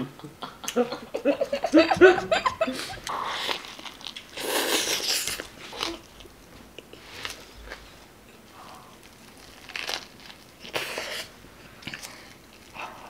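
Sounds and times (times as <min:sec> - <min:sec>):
person biting and chewing food: 0:02.8 - 0:07.9, 0:08.5 - 0:12.8.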